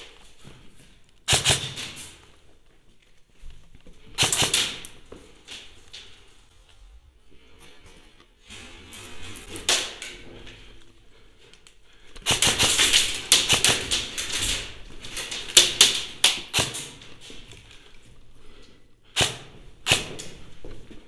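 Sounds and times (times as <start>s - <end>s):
airsoft gunfire: 1.3s - 2.1s, 4.2s - 4.9s, 12.2s - 14.6s, 15.5s - 17.0s, 19.2s - 20.3s.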